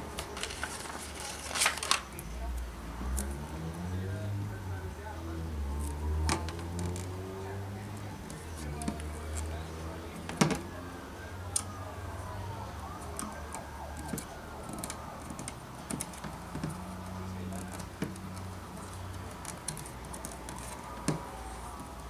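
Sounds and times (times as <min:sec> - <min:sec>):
fingertips tapping plastic grille: 0:07.9 - 0:10.8, 0:12.8 - 0:22.0.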